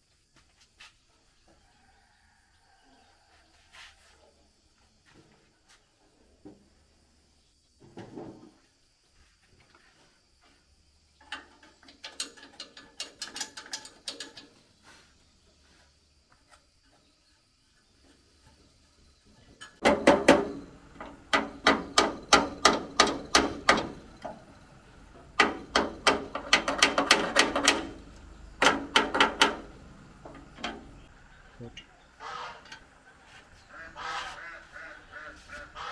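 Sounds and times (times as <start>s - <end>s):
sharp metallic clicks: 19.7s - 24.4s, 25.2s - 30.9s.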